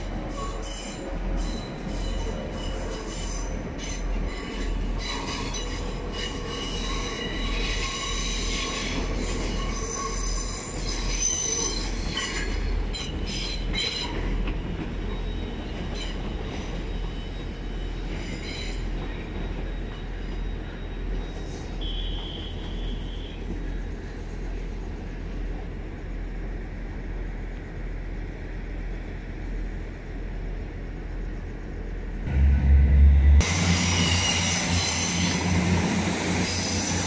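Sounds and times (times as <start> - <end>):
train wheels squealing: 0.0 - 25.2, 33.5 - 37.0
train low rumble: 0.0 - 37.0.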